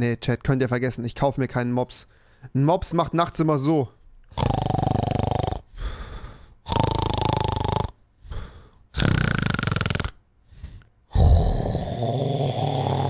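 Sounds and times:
quiet breaths: 0:02.0 - 0:02.6, 0:04.9 - 0:06.7, 0:07.6 - 0:09.0, 0:09.6 - 0:11.6
man imitating snoring: 0:04.3 - 0:05.8, 0:06.6 - 0:13.0.

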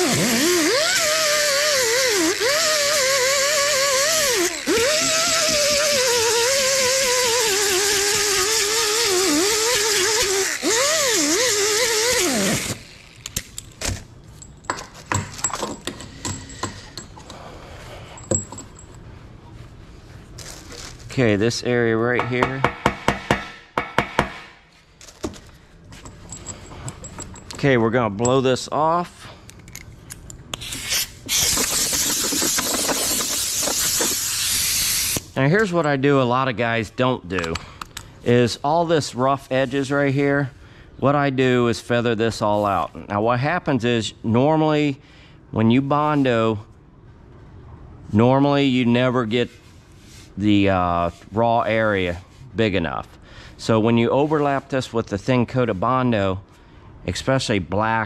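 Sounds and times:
air grinder whining: 0:00.0 - 0:13.3
compressed air hissing: 0:30.6 - 0:35.4.

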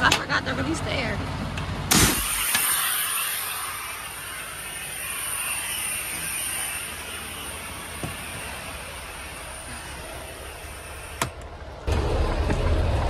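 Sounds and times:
air line coupling pop: 0:01.9 - 0:02.7
compressed air hissing: 0:01.9 - 0:11.4.

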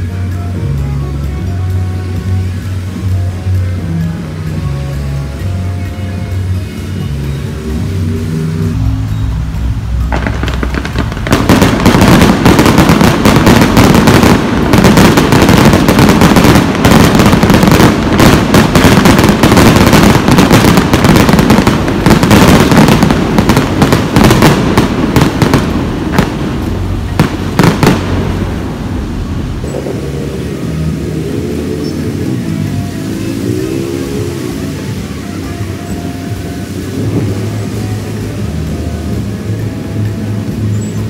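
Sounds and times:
fireworks crackling and popping: 0:00.0 - 0:41.0
firework bangs: 0:10.0 - 0:30.6.

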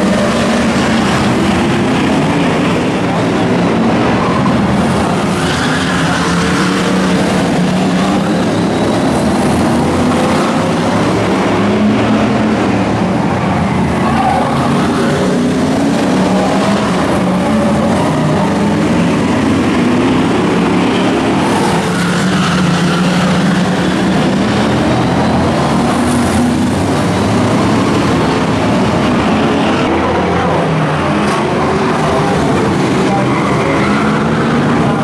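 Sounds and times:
racing car engines: 0:00.0 - 0:35.0.

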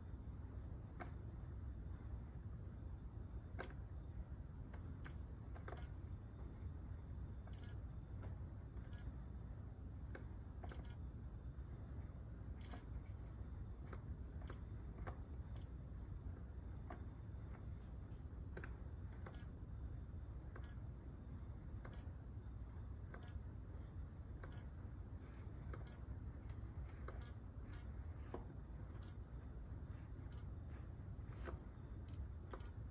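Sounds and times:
faint low hum: 0:00.0 - 0:32.9
high bird-like chirps: 0:07.4 - 0:08.0, 0:08.9 - 0:09.3, 0:10.6 - 0:11.2, 0:12.5 - 0:13.1, 0:14.4 - 0:14.8, 0:15.4 - 0:15.9, 0:20.6 - 0:20.9, 0:24.4 - 0:26.2, 0:27.0 - 0:28.2, 0:28.9 - 0:30.9, 0:31.8 - 0:32.9.

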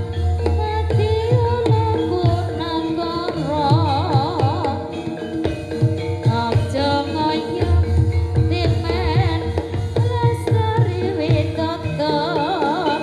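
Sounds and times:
hand drum strokes: 0:00.0 - 0:12.9
gamelan music: 0:00.0 - 0:13.0
metallophone notes: 0:00.0 - 0:13.0.

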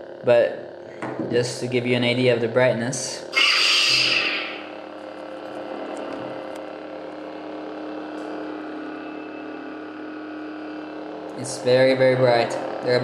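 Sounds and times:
lightsaber idle hum: 0:00.0 - 0:13.0.

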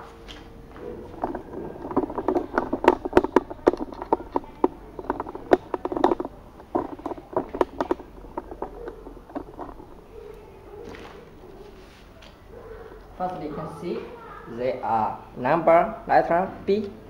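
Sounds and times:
rustling: 0:00.0 - 0:13.4.

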